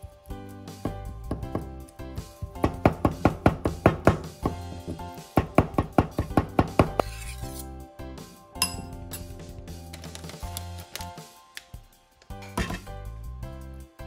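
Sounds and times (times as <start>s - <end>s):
background music: 0.0s - 14.0s
knife chopping on wooden board: 2.6s - 7.6s
spoon clinking on glass bowl: 8.6s - 9.3s.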